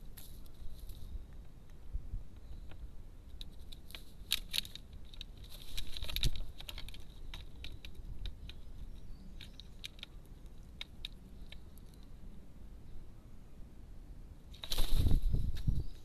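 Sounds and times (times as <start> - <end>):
bird scuffle: 2.4 - 12.0, 14.5 - 16.0
crows pecking at feeder: 2.4 - 12.1.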